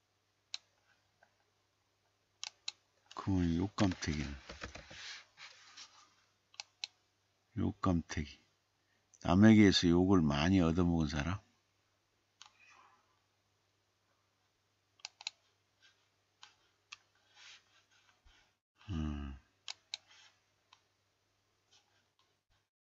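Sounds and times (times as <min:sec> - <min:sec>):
computer mouse clicks: 0:02.4 - 0:03.2, 0:06.5 - 0:07.0, 0:12.4 - 0:12.7, 0:15.0 - 0:15.4
man's short wordless vocal sound: 0:18.8 - 0:19.4.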